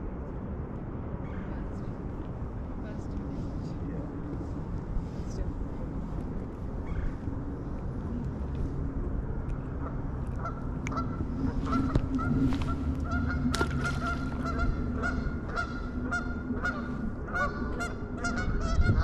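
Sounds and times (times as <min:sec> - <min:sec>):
geese honking: 0:09.8 - 0:19.0.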